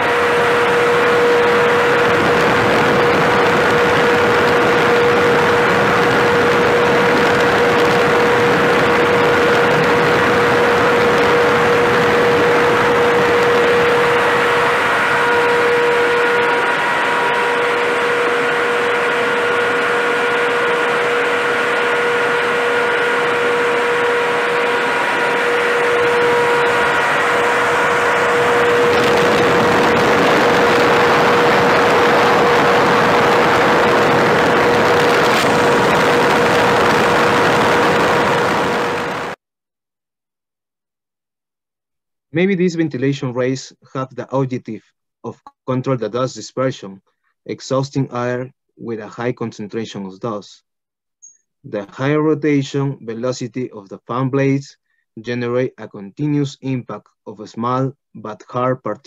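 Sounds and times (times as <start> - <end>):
fan whine: 0.0 - 39.4
ventilation fan air rush: 0.0 - 39.4.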